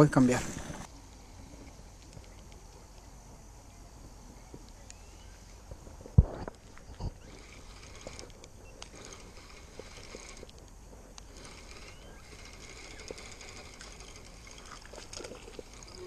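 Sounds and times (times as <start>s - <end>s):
faint outdoor background: 0.0s - 16.0s
fishing reel handling noise: 6.5s - 16.0s.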